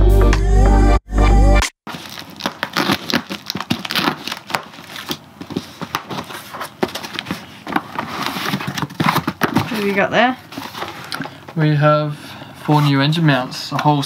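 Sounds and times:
packing tape tearing: 0:01.9 - 0:09.6
cardboard crinkling and rustling: 0:01.9 - 0:11.4.

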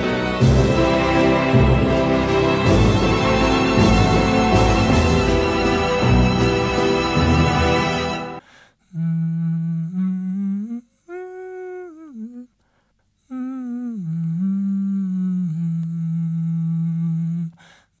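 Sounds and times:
person humming: 0:08.8 - 0:12.6, 0:13.2 - 0:17.7.

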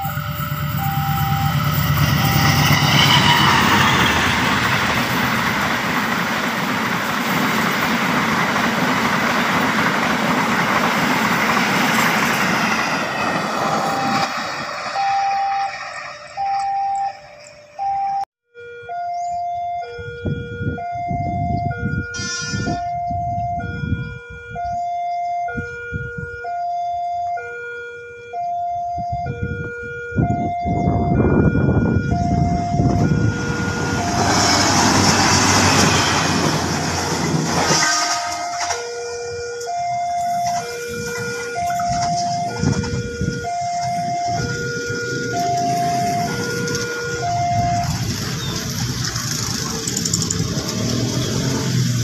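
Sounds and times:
two-tone crossing chime: 0:00.0 - 0:03.6
train rushing rumble: 0:00.0 - 0:17.5, 0:31.2 - 0:52.0.

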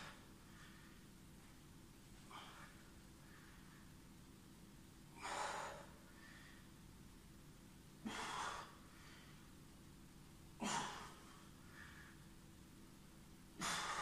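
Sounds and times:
man breathing hard: 0:05.1 - 0:06.8, 0:08.0 - 0:09.5, 0:13.6 - 0:14.0.

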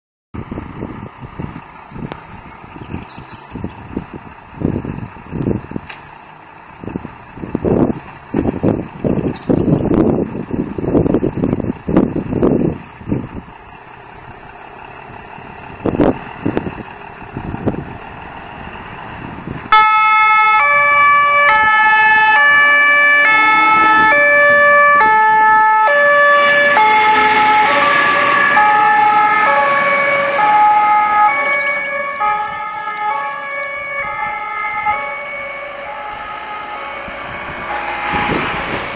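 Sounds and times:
vehicle noise: 0:00.4 - 0:38.9
two-tone fire engine siren: 0:19.6 - 0:38.9.

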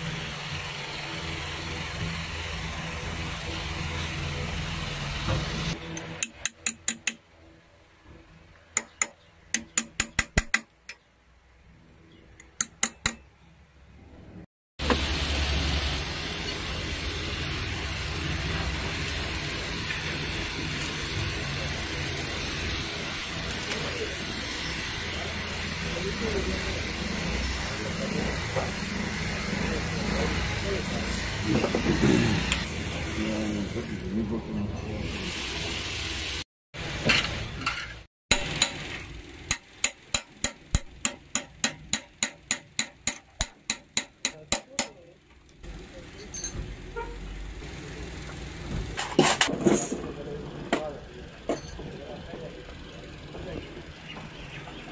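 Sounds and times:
workshop noise: 0:00.0 - 0:54.9
engine running steadily: 0:14.8 - 0:54.9.

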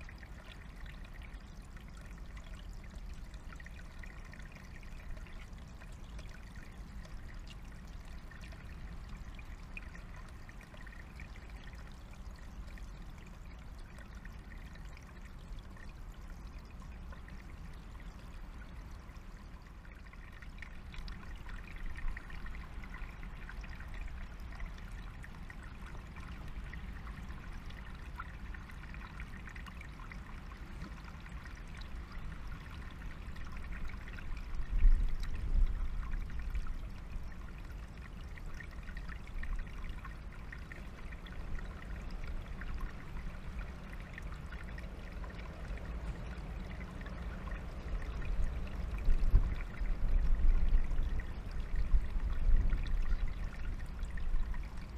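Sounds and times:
stream trickling over stones: 0:00.0 - 0:54.9.

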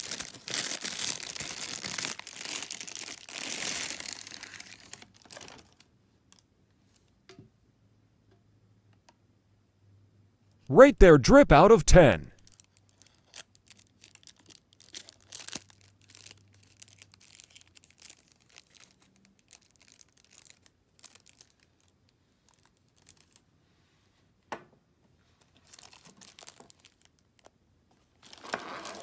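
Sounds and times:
plastic sleeve crinkling: 0:00.0 - 0:05.8, 0:12.5 - 0:23.4, 0:25.6 - 0:27.5, 0:28.2 - 0:29.0.

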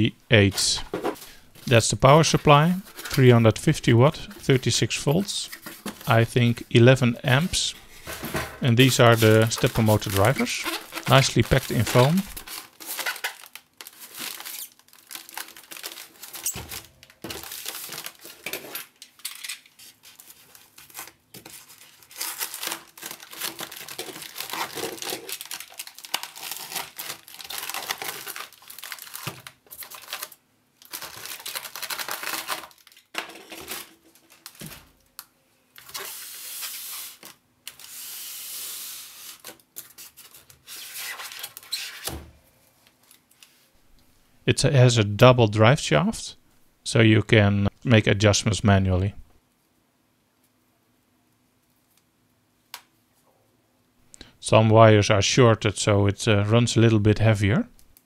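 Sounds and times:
plastic wrapping crinkling: 0:04.1 - 0:35.2
packing tape tearing: 0:08.8 - 0:35.0, 0:35.8 - 0:42.2.

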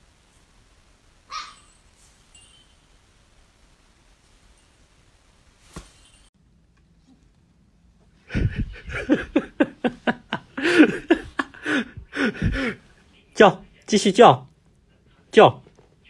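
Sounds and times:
puppy yelping and whining: 0:01.3 - 0:01.8.

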